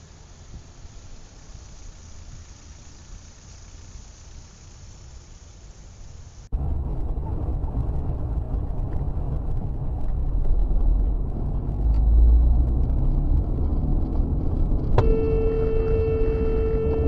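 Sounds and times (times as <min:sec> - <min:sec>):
car driving on road: 0:06.3 - 0:17.0.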